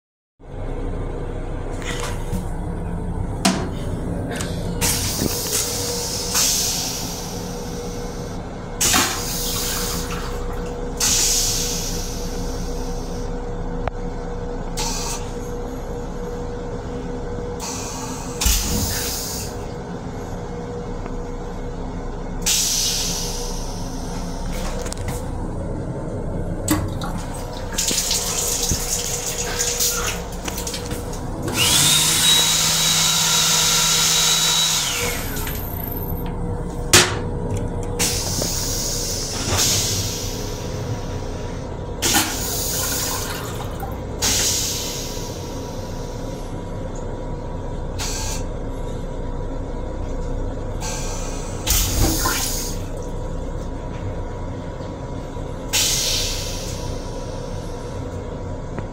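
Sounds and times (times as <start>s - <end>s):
steady hum: 0.4s - 58.9s
hand dryer and faucet bursts: 27.8s - 35.7s.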